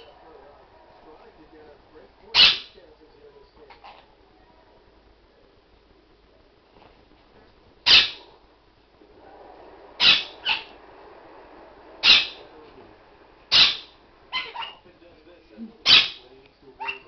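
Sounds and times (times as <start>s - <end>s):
parrot squawking: 2.3s - 2.8s, 3.7s - 4.1s, 7.8s - 8.4s, 10.0s - 10.8s, 12.0s - 12.5s, 13.5s - 14.8s, 15.8s - 17.0s.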